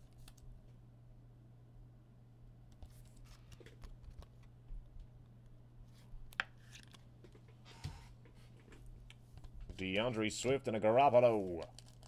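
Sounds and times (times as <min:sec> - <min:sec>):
cards clicking and rustling: 0:11.4 - 0:12.0.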